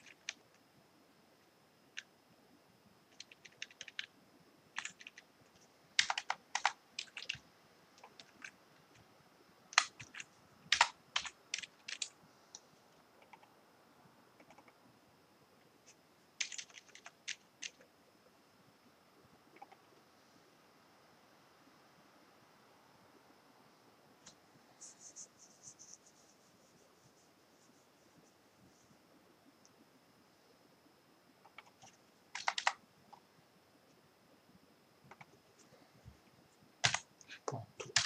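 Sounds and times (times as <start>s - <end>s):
computer keyboard typing: 0.0s - 0.5s, 3.1s - 4.1s, 4.8s - 7.4s, 8.0s - 9.0s, 9.7s - 12.1s, 13.2s - 13.5s, 14.4s - 14.8s, 16.4s - 17.9s, 19.5s - 19.9s, 31.4s - 32.8s, 35.1s - 35.6s, 36.8s - 38.0s.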